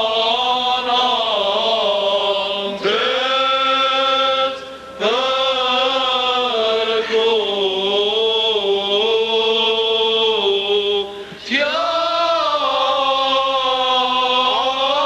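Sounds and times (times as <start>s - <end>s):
voices chanting long held notes: 0.0s - 15.0s.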